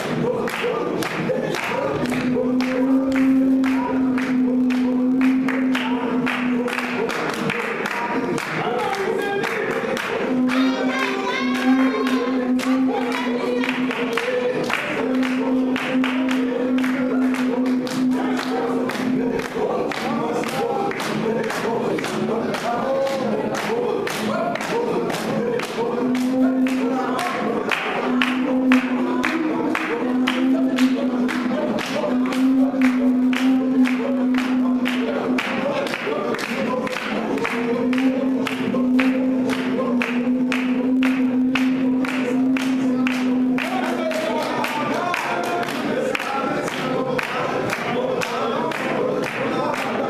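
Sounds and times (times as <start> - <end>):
group singing in chorus: 0.0 - 50.0
hand clapping: 0.0 - 50.0
voice holding long note: 8.6 - 21.0.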